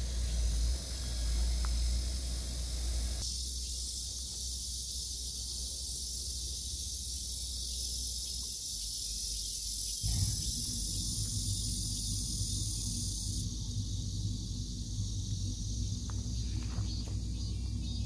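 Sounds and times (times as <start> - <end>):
cicadas buzzing: 0.0 - 18.0
low rumble: 10.0 - 18.0.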